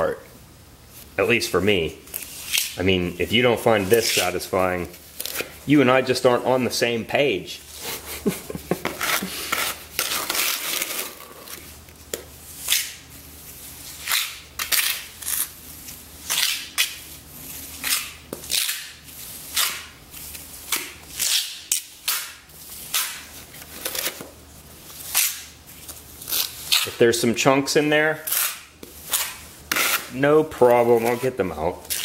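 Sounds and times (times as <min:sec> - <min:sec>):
trowel scraping cement: 0:28.3 - 0:30.2.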